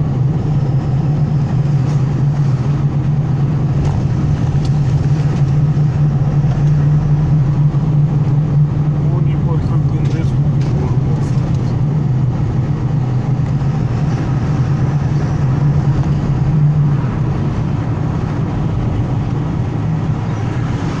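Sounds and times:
road noise: 0.0s - 21.0s
truck engine drone: 0.0s - 21.0s.

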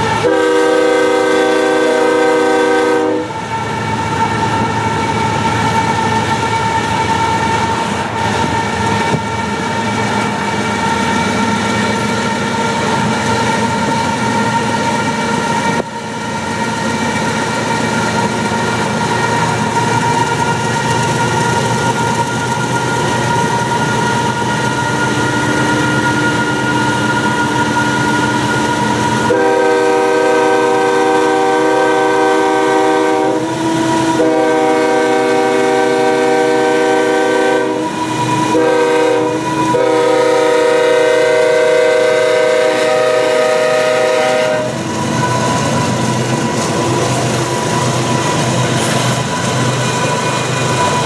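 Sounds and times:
train air horn blasts: 0.0s - 3.5s, 25.2s - 44.8s
diesel locomotives running: 0.0s - 51.0s.

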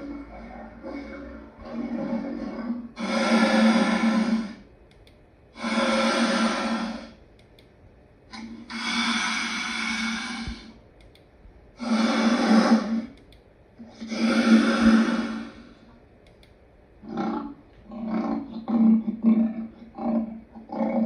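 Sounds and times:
lion roaring and grunting: 0.0s - 4.6s, 17.0s - 21.0s.

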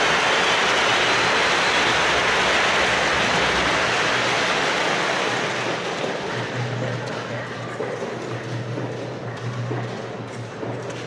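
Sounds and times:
large crowd applauding: 0.0s - 7.4s.

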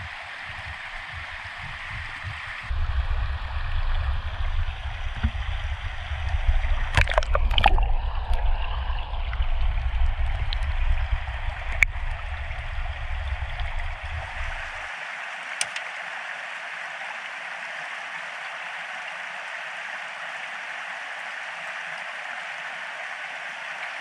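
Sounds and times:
low rumble: 0.0s - 14.9s
stream rushing: 0.0s - 24.0s.

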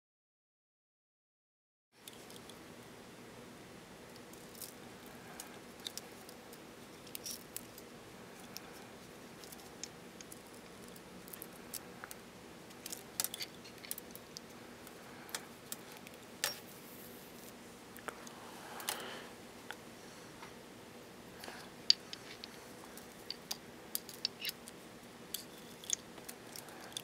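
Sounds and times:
steady low hum: 2.0s - 27.0s
small metal parts clicking: 4.2s - 7.8s, 12.7s - 16.6s, 21.9s - 27.0s.

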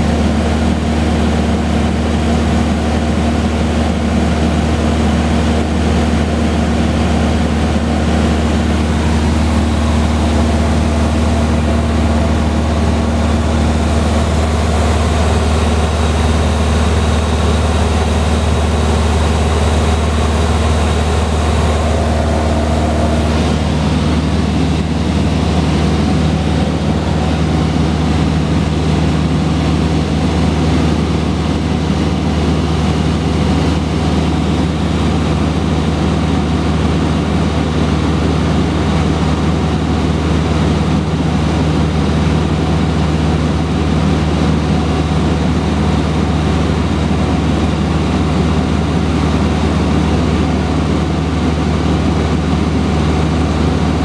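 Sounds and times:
airplane engine droning: 0.0s - 54.0s
air rushing past cabin: 7.5s - 17.1s, 18.2s - 29.6s.

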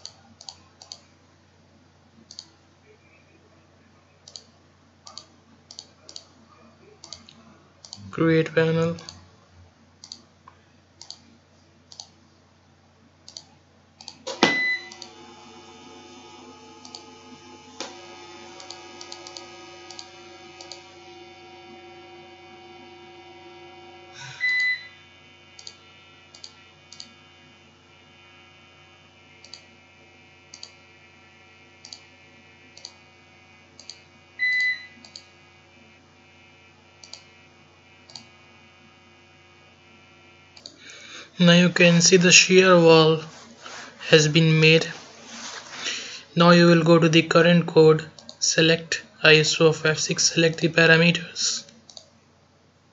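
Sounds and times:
computer mouse clicks: 0.0s - 1.1s, 2.3s - 2.5s, 4.2s - 6.3s, 7.0s - 8.0s, 10.0s - 10.3s, 11.0s - 11.3s, 11.9s - 12.2s, 13.2s - 14.2s, 16.8s - 17.1s, 18.6s - 20.9s, 25.6s - 27.1s, 29.4s - 29.7s, 30.5s - 30.8s, 31.8s - 32.1s, 32.8s - 33.0s, 33.8s - 34.0s, 35.0s - 35.3s, 37.0s - 37.3s, 38.1s - 38.3s, 40.6s - 40.9s, 51.6s - 52.1s
faint steady hum: 0.0s - 52.9s.

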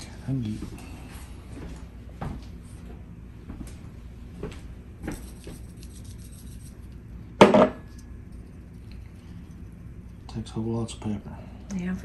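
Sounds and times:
tableware clattering: 7.4s - 7.9s
tableware clinking: 7.4s - 7.9s.

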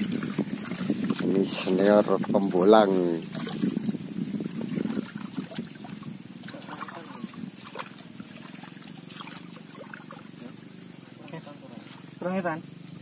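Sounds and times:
muddy water splashing: 0.0s - 13.0s
steady low hum: 0.0s - 13.0s.

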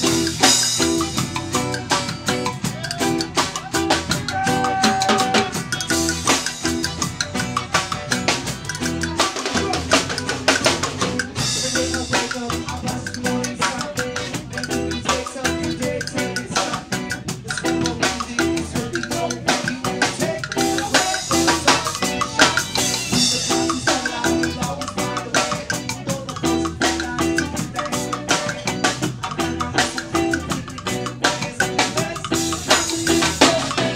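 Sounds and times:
live band playing: 0.0s - 33.9s.

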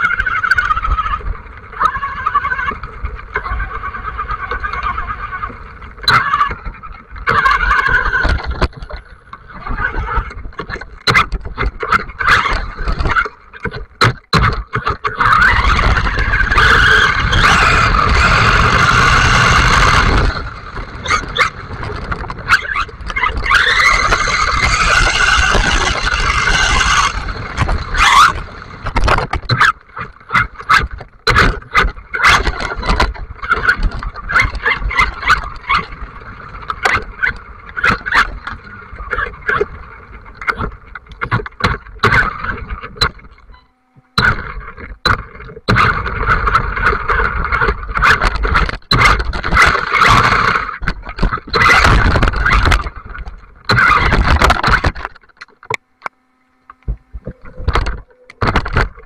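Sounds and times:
electric motor whining: 14.8s - 59.0s.

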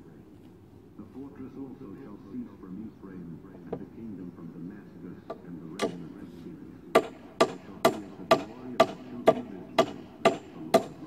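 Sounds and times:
hammer striking nails into wood: 5.3s - 6.0s, 7.0s - 11.0s.

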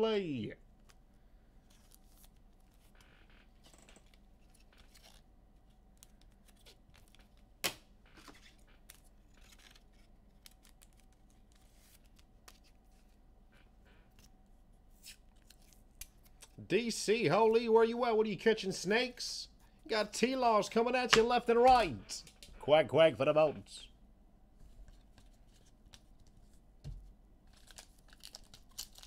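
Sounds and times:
trading cards rustling and clicking: 3.6s - 7.5s, 8.2s - 13.2s, 15.0s - 16.6s, 27.5s - 29.0s.

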